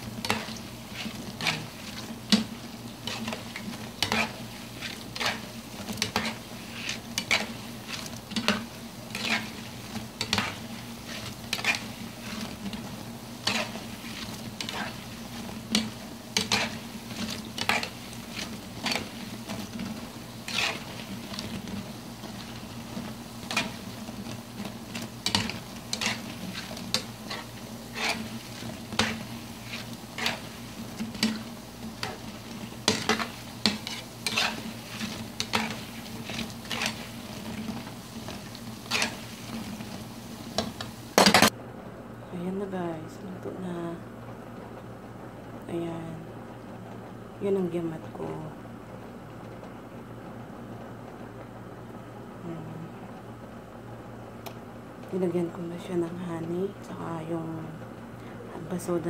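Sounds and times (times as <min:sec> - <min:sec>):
dough sizzling in hot oil: 0:00.0 - 0:41.6
spoon scraping and knocking pan: 0:00.1 - 0:41.5.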